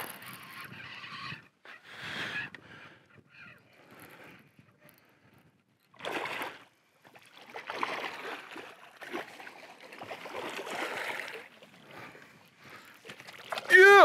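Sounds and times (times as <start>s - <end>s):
water splashing and sloshing: 5.9s - 14.0s.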